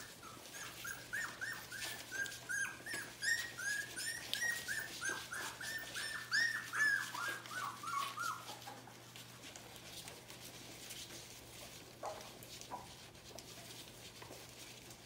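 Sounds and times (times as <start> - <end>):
low puppy whimper: 0.0 - 9.0
puppies whining: 0.0 - 10.8.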